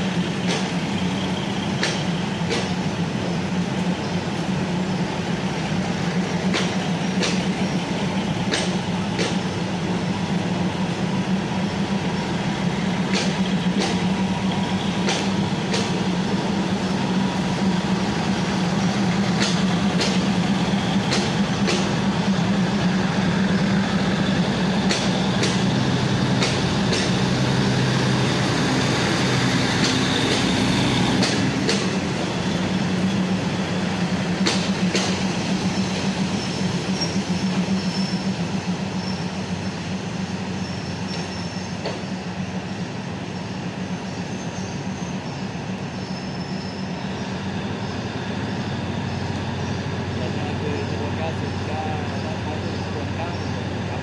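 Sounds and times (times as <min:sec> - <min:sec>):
diesel engine hum: 0:00.0 - 0:54.0
train wheels rumbling: 0:00.0 - 0:54.0
wheels clicking over rail joints: 0:00.4 - 0:01.1, 0:01.7 - 0:02.8, 0:06.2 - 0:10.2, 0:12.6 - 0:23.0, 0:24.7 - 0:33.3, 0:34.0 - 0:39.6.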